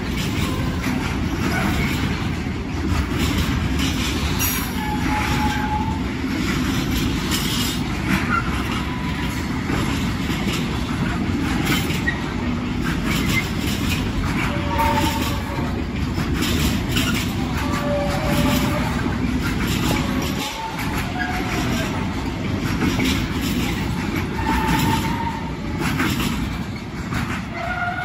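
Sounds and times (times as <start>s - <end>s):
clatter over track: 0.0s - 28.0s
train wheels rumbling on rail: 0.0s - 28.0s
wheel squeals: 3.8s - 6.1s, 11.6s - 15.7s, 22.8s - 28.0s.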